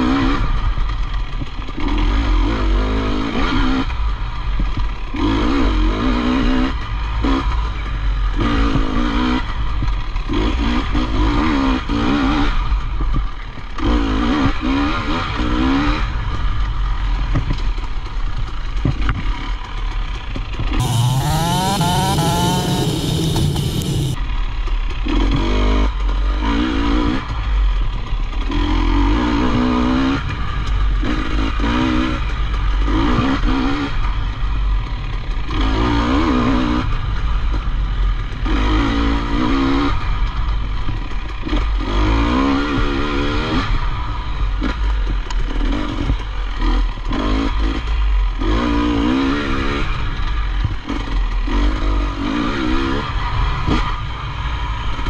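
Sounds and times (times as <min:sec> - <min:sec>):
dirt bike engine revving: 0:05.0 - 0:12.7, 0:18.6 - 0:24.2, 0:28.4 - 0:30.3, 0:30.9 - 0:34.2, 0:34.9 - 0:36.9, 0:38.4 - 0:40.2, 0:41.4 - 0:55.0.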